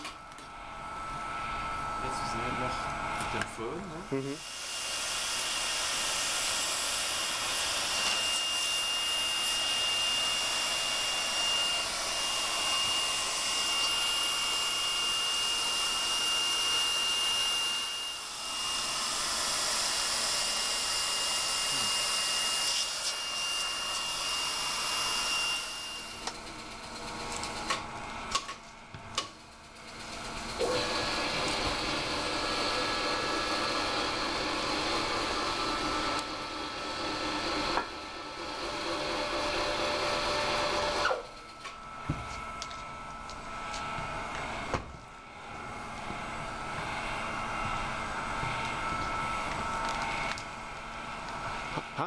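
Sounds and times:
hot-air gun blowing: 0:04.2 - 0:28.4, 0:29.9 - 0:41.3.

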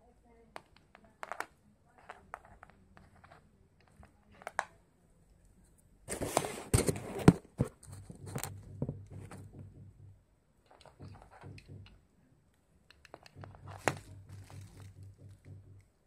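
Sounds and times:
faint low hum: 0:00.0 - 0:16.0
rustling and knocks: 0:06.1 - 0:12.1, 0:13.1 - 0:16.0
cables and connectors clicking: 0:06.8 - 0:16.0.

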